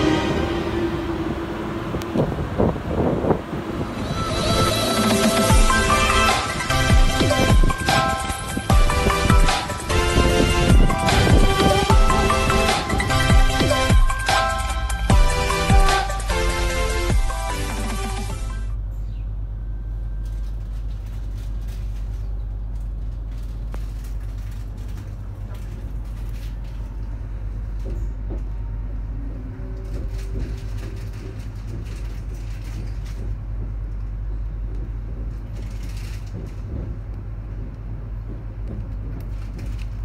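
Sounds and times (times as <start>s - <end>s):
train carriage rumble: 0.0s - 40.0s
running gear clicks and knocks: 20.2s - 28.6s, 29.6s - 40.0s.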